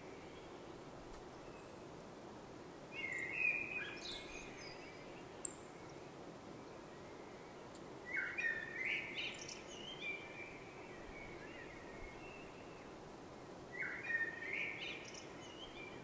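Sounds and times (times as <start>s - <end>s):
low background noise: 0.0s - 16.0s
songbird singing: 2.9s - 13.0s, 13.7s - 16.0s.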